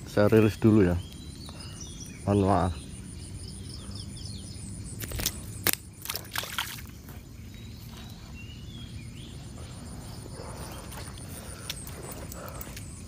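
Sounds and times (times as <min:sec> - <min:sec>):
fish splashing in water: 0:05.0 - 0:07.0.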